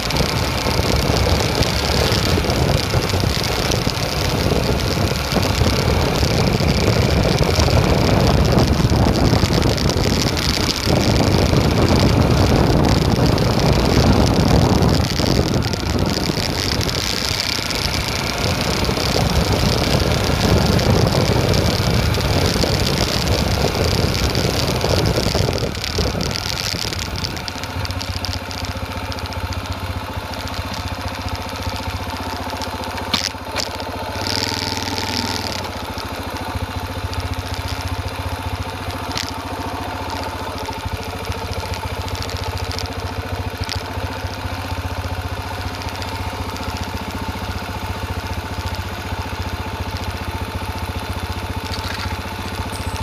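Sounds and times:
wind noise on microphone: 0:00.0 - 0:28.6
motorcycle engine running: 0:00.0 - 0:53.0.

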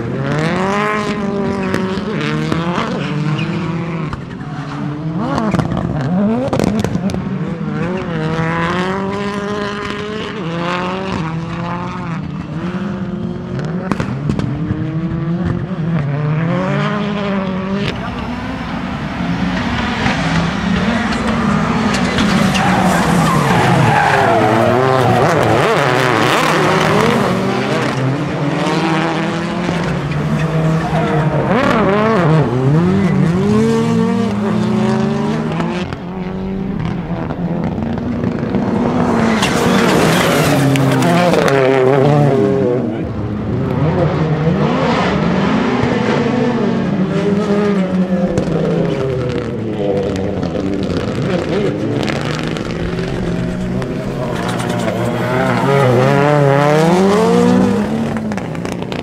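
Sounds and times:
racing car engines revving: 0:00.0 - 0:59.0
tyres skidding: 0:17.4 - 0:43.8, 0:46.8 - 0:59.0.

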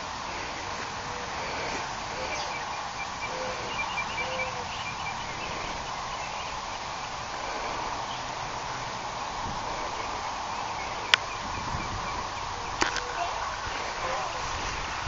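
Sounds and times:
outdoor background hiss: 0:00.0 - 0:15.0.

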